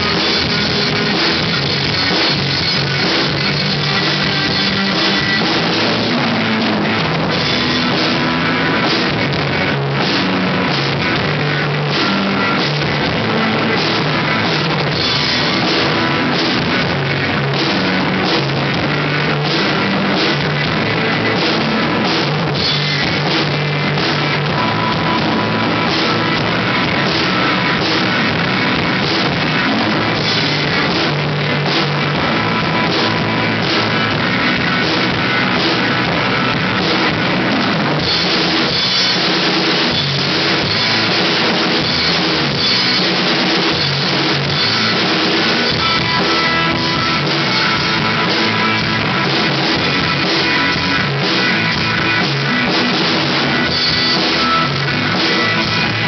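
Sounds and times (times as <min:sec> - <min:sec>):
drum kit with cymbals: 0:00.0 - 0:56.0
guitar: 0:00.0 - 0:56.0
rock band playing: 0:00.0 - 0:56.0.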